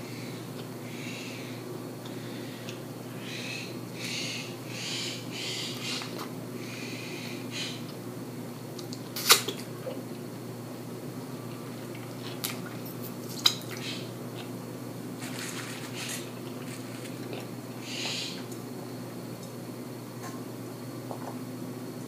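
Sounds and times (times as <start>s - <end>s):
steady low hum: 0.0s - 22.0s
chewing: 11.4s - 14.6s, 15.2s - 17.6s.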